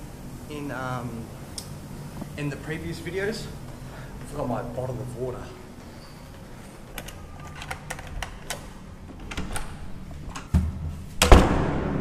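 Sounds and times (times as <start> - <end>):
door banging: 10.5 - 12.0
door thud: 10.6 - 12.0.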